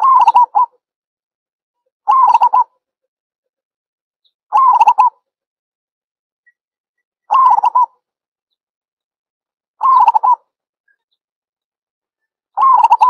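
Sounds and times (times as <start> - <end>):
dove cooing: 0.0 - 0.8, 2.1 - 2.7, 4.5 - 5.2, 7.3 - 8.0, 9.8 - 10.4, 12.6 - 13.0.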